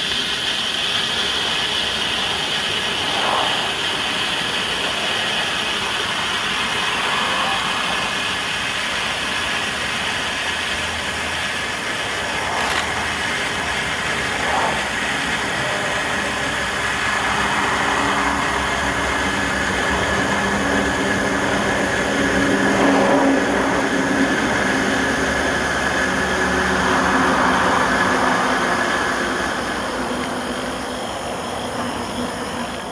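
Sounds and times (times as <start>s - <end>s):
flare burning with a hiss: 0.9s - 7.0s.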